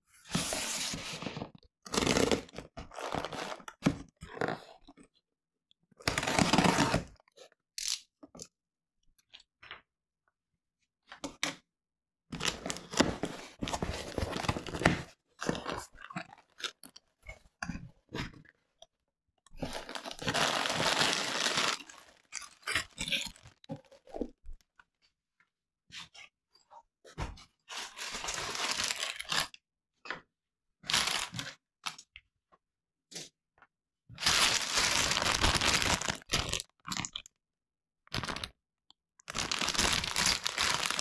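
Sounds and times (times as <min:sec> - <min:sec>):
cardboard tearing and scraping: 0:00.3 - 0:03.6, 0:06.1 - 0:07.1, 0:12.4 - 0:15.8, 0:19.6 - 0:23.4, 0:34.2 - 0:36.6, 0:39.3 - 0:41.0
packing rustling: 0:19.6 - 0:23.4, 0:34.2 - 0:36.6, 0:39.3 - 0:41.0.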